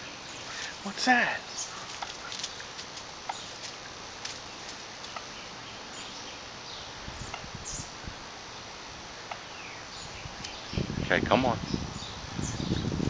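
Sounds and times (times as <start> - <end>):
small birds chirping: 0.0 - 13.0
steady background hiss: 0.0 - 13.0.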